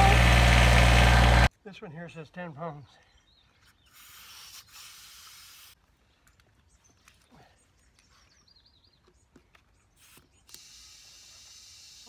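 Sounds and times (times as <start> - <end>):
air hissing at tire valve: 10.0 - 12.0.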